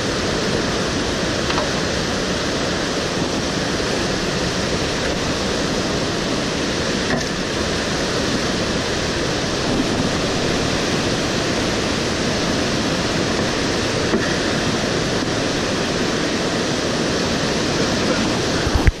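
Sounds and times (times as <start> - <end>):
river rapids rushing over boulders: 0.0 - 19.0.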